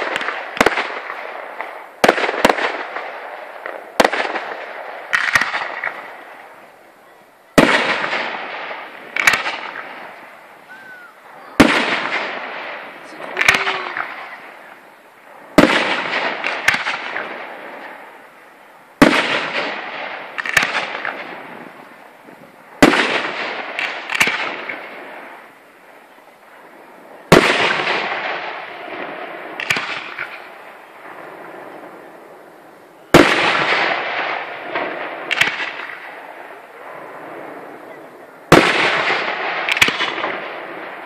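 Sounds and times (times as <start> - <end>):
firework shells bursting: 0.0 - 6.8, 7.6 - 18.4, 33.1 - 36.7.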